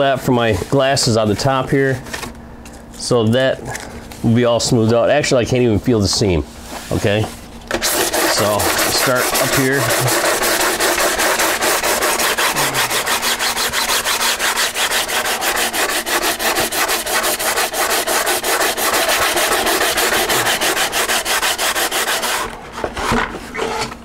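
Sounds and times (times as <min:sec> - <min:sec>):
sandpaper rubbing on resin: 0:07.7 - 0:22.5.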